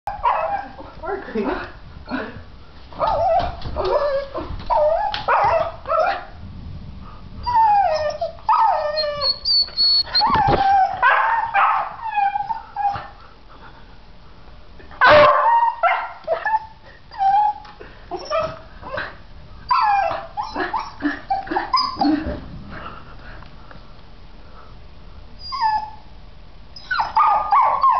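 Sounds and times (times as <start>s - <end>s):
dogs whining and yipping: 3.0s - 6.2s, 7.4s - 13.1s, 15.0s - 19.1s, 19.7s - 22.4s, 25.4s - 26.1s, 26.8s - 27.9s.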